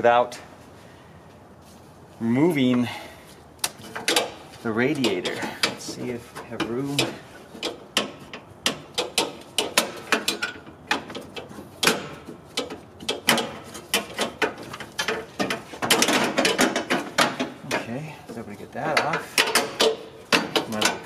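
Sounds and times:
clicks and metal knocks: 3.6s - 21.0s.

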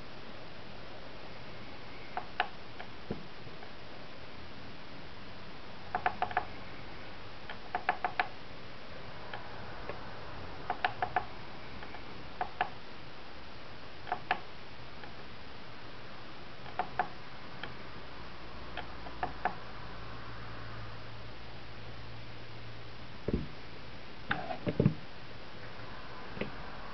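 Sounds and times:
faint steady hiss: 0.0s - 26.9s
sharp mechanical clicks: 5.9s - 6.5s, 7.5s - 8.3s.

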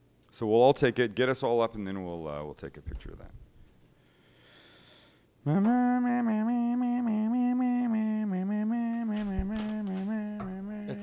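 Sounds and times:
person singing long note: 5.4s - 11.0s.

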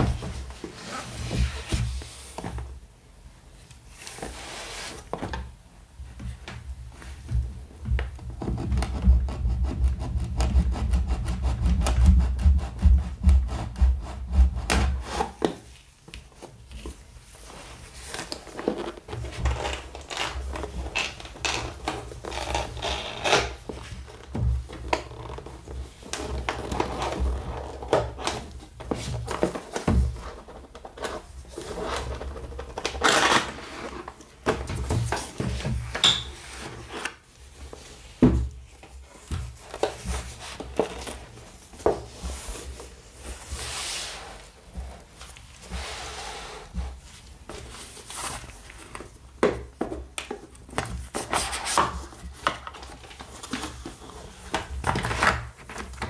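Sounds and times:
cardboard knocking and sliding: 0.0s - 2.8s, 23.6s - 56.0s.

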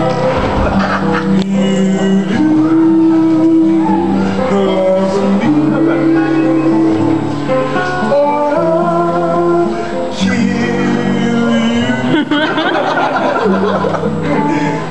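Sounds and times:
acoustic guitar: 0.0s - 14.9s
men singing in harmony: 0.0s - 14.9s
laughter: 0.6s - 1.4s, 12.0s - 14.7s.

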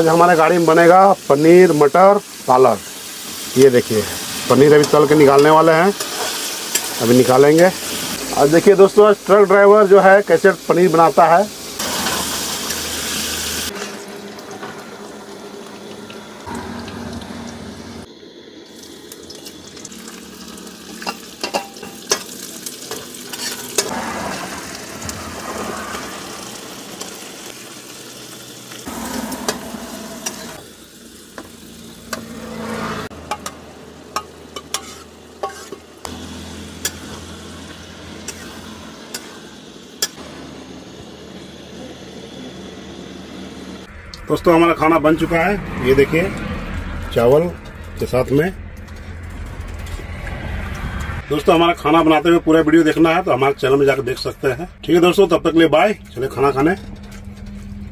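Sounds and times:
food sizzling in oil: 0.0s - 43.9s
metal spatula scraping pan: 22.9s - 25.8s, 34.2s - 35.9s.

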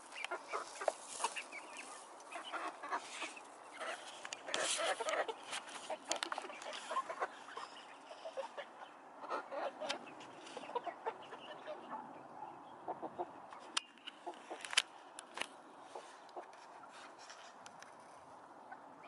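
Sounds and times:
beaks ticking on ground: 0.0s - 7.9s
hens clucking: 0.0s - 14.8s, 15.8s - 17.2s.

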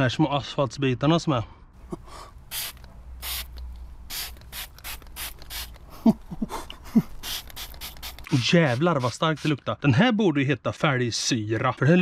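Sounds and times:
spray bottle hissing sprays: 2.4s - 5.9s, 7.0s - 9.6s.

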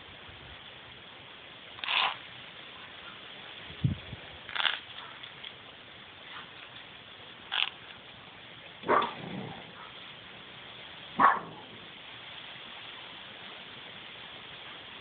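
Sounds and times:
steady low hiss: 0.0s - 15.0s
dog barking: 8.8s - 10.0s, 11.2s - 11.7s.

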